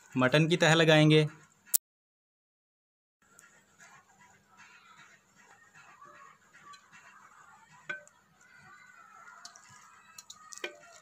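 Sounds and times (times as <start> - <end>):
meat clinking against clay pot: 6.6 - 11.0.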